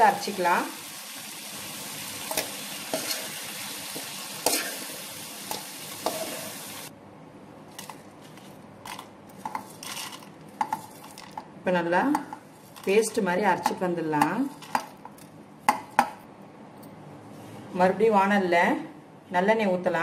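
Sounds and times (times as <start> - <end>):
vegetables sizzling in oil: 0.0 - 6.9
metal spoon scraping a pan: 2.3 - 6.6.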